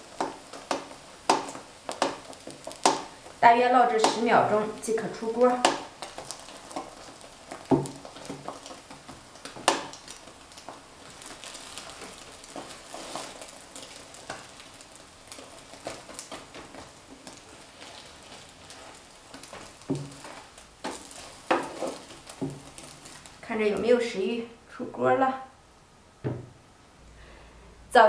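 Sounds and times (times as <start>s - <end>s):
spatula scraping and tapping pan: 0.0s - 23.3s
pancake sizzling: 0.0s - 24.3s
sharp knocks: 26.2s - 26.6s.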